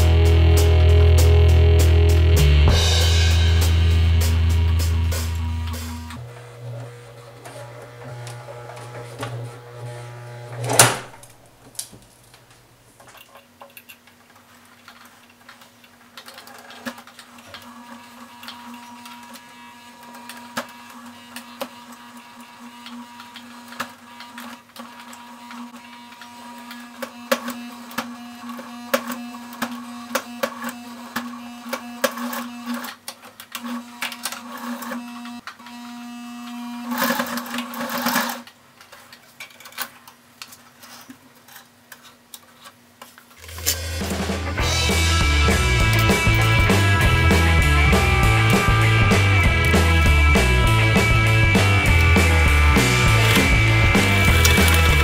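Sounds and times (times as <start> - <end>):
sewing machine stitching paper: 16.2 - 35.4, 36.8 - 38.5, 53.0 - 55.0
clicks: 51.9 - 55.0.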